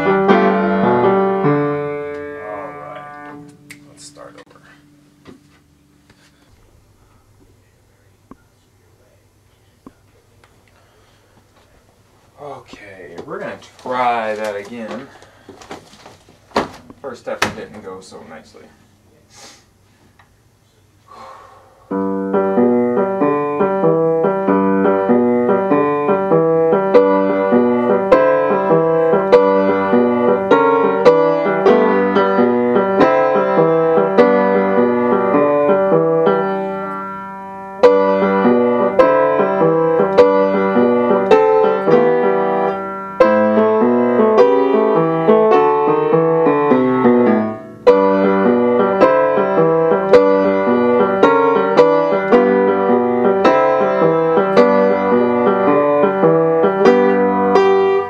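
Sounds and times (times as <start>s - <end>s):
boogie-woogie piano: 0.0s - 4.9s, 21.9s - 58.0s.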